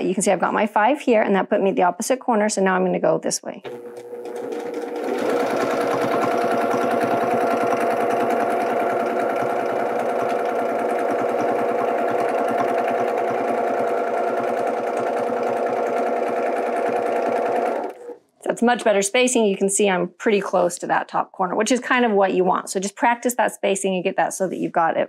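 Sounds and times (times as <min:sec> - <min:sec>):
sewing machine motor hum: 0:03.7 - 0:18.2
sewing machine needle clatter: 0:03.7 - 0:18.2.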